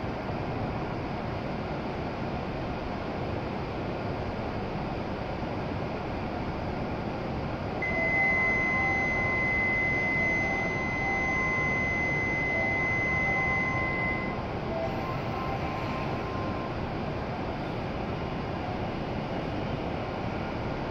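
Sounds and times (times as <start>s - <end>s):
train platform hum: 0.0s - 20.9s
high electronic signal tone: 7.8s - 16.8s.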